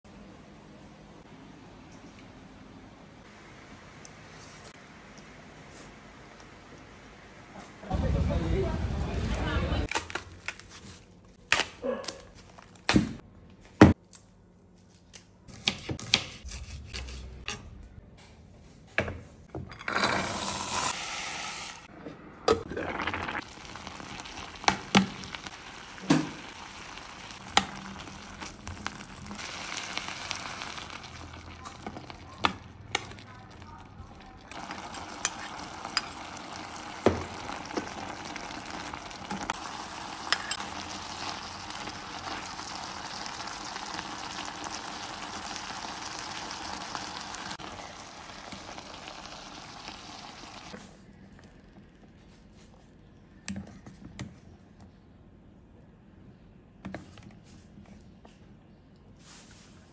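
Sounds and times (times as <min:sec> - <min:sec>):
corn kernels sizzling in a pot: 0:19.9 - 0:21.9, 0:22.7 - 0:33.3, 0:34.4 - 0:50.8.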